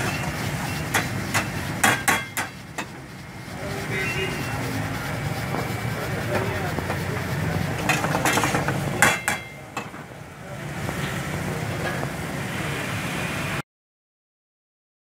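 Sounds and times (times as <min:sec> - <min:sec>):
kitchen background noise: 0:00.0 - 0:13.0
metal ladle clattering against pan: 0:07.8 - 0:10.0.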